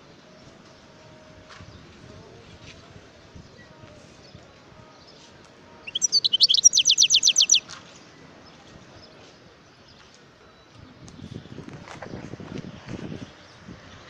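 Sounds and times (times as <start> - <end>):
goldfinch trilling: 5.8 - 7.6.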